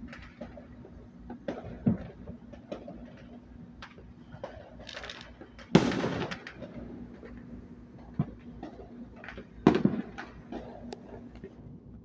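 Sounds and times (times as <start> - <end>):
distant fireworks popping: 0.0 - 12.0
loud echoing bang: 5.8 - 6.6.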